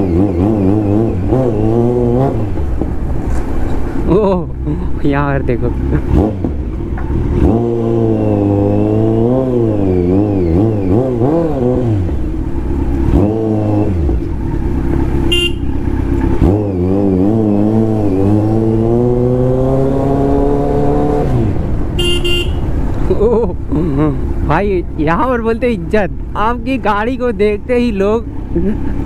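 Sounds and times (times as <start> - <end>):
motorcycle engine revving: 0.0 - 25.7
vehicle horn beeping: 15.3 - 15.8, 22.0 - 22.7.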